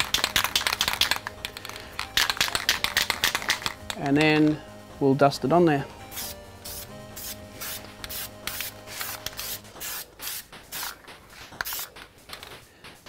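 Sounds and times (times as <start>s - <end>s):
spray paint can hissing: 0.0s - 4.0s, 6.1s - 12.6s.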